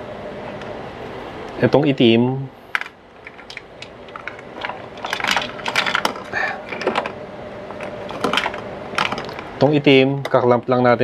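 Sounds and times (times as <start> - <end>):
clamps and cables clattering: 2.8 - 9.5.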